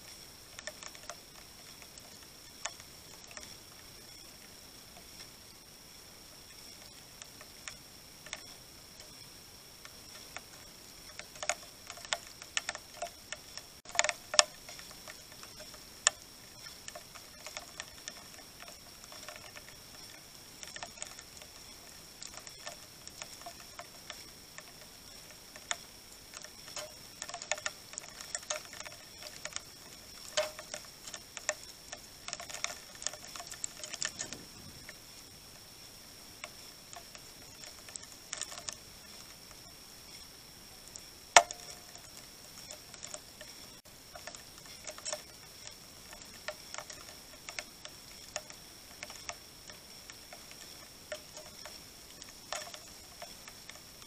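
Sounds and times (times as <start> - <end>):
birds pecking seed: 0.0 - 54.0.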